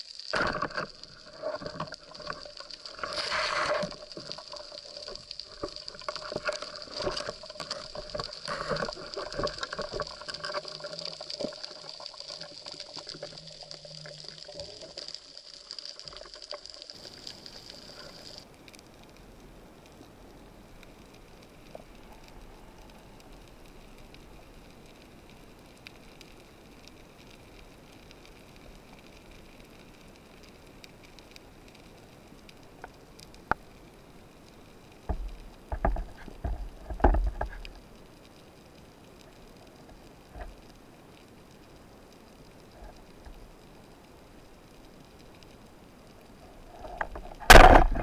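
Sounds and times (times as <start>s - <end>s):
faint steady hiss: 0.0s - 48.0s
underwater sloshing and bubbling: 0.0s - 48.0s
sharp clicks and knocks: 35.1s - 37.7s, 47.0s - 48.0s.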